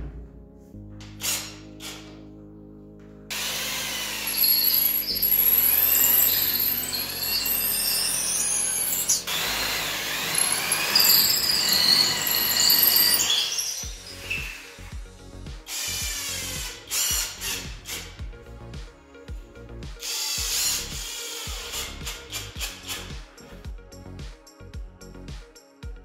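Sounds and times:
electric drill boring into wood: 1.2 - 2.1, 3.3 - 14.9, 15.7 - 18.2, 20.0 - 23.1.

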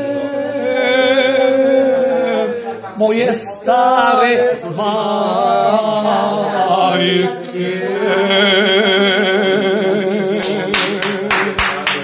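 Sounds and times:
man singing unaccompanied: 0.0 - 12.0
hand clapping: 10.4 - 12.0.

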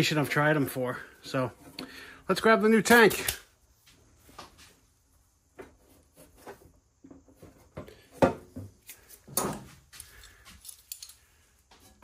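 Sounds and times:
parts knocking and clunking: 5.5 - 10.0.

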